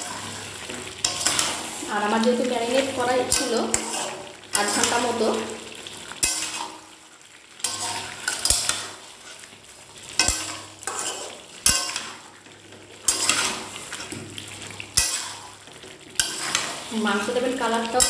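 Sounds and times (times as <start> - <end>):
spatula scraping pan: 0.0 - 6.8, 7.6 - 18.0
frying sizzle: 0.0 - 18.0.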